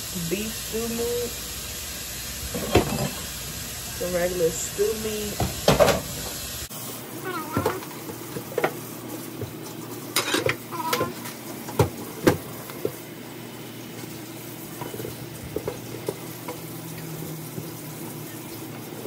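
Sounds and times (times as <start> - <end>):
tap running into sink: 5.4 - 6.3, 10.2 - 13.0.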